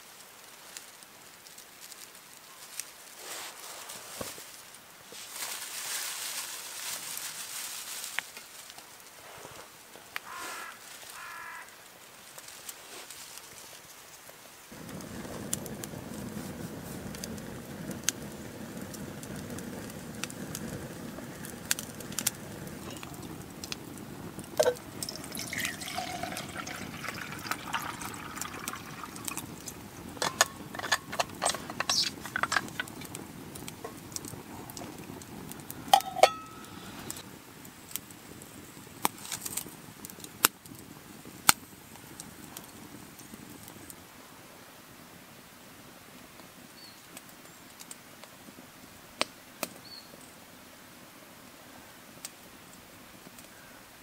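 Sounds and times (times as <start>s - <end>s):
campfire crackling: 0.0s - 54.0s
water pouring into metal pot: 24.5s - 33.2s.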